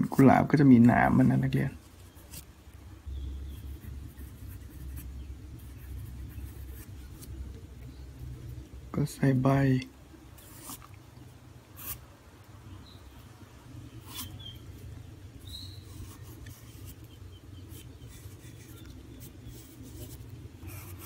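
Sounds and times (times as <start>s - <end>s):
steady low hum: 0.0s - 21.0s
faint high chirps: 15.4s - 19.6s
pencil sketching on paper: 17.7s - 21.0s.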